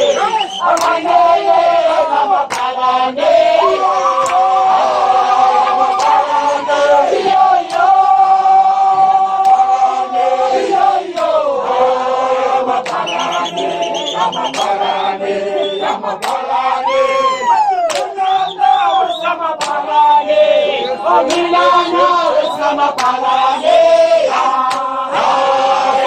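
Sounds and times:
group chanting: 0.0 - 26.0
sharp claps or knocks: 2.4 - 2.8, 12.8 - 13.1, 14.4 - 14.8, 16.2 - 16.4, 19.6 - 19.8, 22.9 - 23.2, 24.6 - 25.0.

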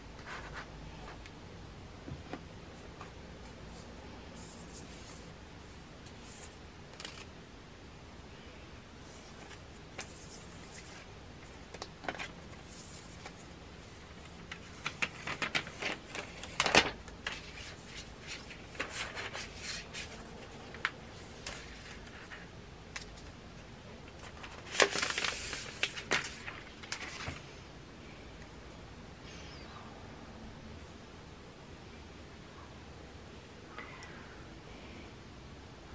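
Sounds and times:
plastic wrap crinkling: 14.2 - 22.4, 24.2 - 27.4.

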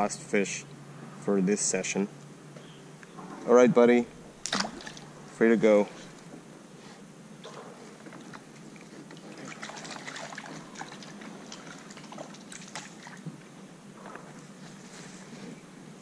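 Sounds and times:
water lapping and trickling: 4.3 - 6.3, 7.4 - 15.3.

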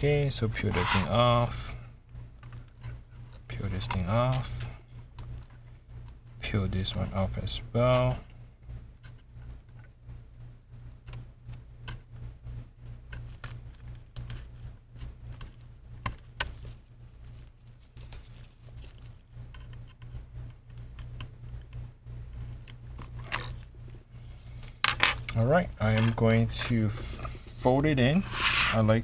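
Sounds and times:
low steady hum: 0.0 - 29.0
tape liner peeling crackles: 16.2 - 19.3.

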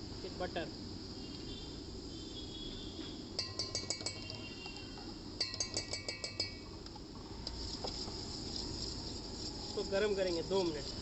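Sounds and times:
spoon clinking against steel pot: 3.4 - 6.7.

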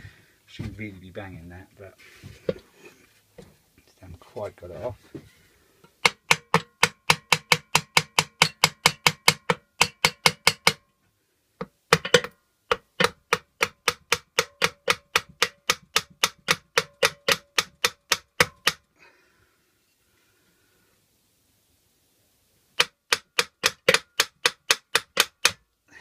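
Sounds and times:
hammer tapping on metal: 6.0 - 10.8, 11.6 - 18.8, 22.8 - 25.6.

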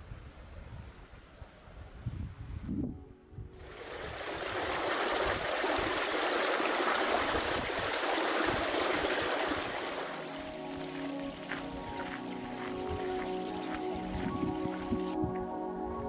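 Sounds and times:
running water rushing: 3.6 - 15.1.

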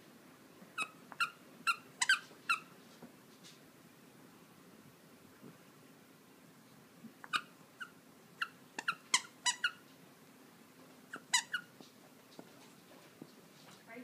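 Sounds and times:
squeaky dog toy squeaking: 0.8 - 2.7, 7.3 - 9.8, 11.1 - 11.7.

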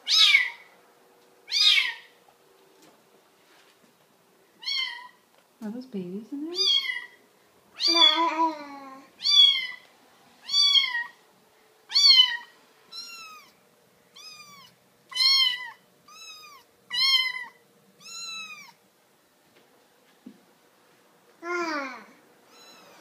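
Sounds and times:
kittens meowing: 0.0 - 0.7, 1.5 - 2.2, 4.6 - 5.2, 6.6 - 7.2, 7.8 - 11.2, 11.9 - 18.8, 21.4 - 23.0.

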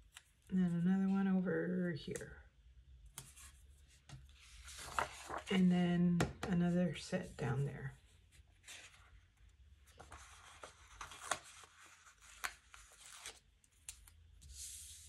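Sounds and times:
paper stickers rustling: 4.4 - 5.5, 10.0 - 14.8.

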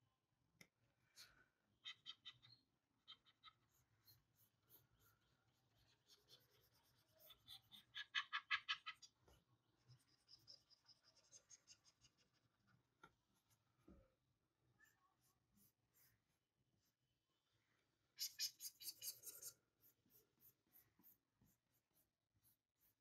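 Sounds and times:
stylus scratching on drawing tablet: 3.1 - 9.2, 9.8 - 12.6, 14.8 - 17.1, 18.2 - 23.0.

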